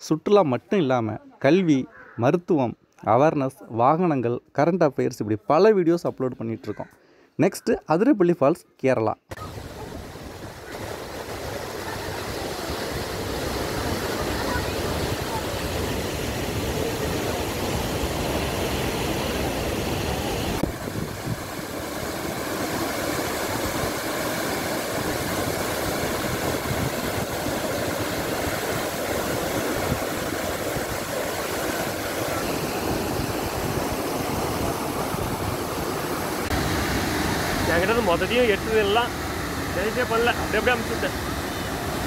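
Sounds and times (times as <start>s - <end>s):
waterfall roaring: 9.3s - 42.0s.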